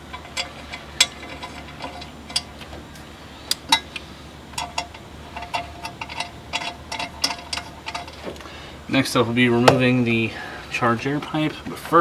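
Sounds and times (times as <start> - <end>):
bolts clicking and clinking: 0.0 - 8.5.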